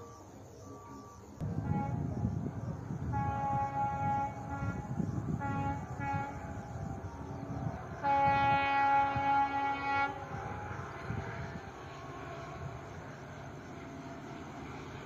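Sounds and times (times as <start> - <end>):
low rumble: 1.4 - 8.5
locomotive air horn blasts: 1.4 - 12.8.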